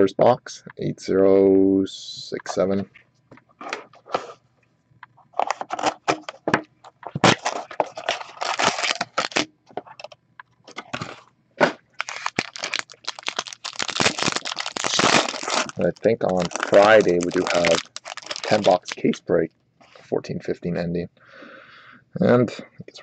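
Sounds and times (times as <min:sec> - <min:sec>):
foil pack crinkling: 0:07.1 - 0:09.5, 0:12.0 - 0:19.2.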